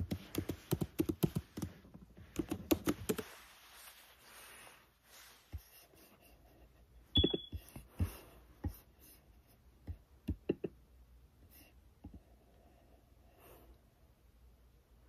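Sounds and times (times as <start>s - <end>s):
laptop keyboard and trackpad clicks: 0.0s - 1.7s, 2.3s - 3.2s.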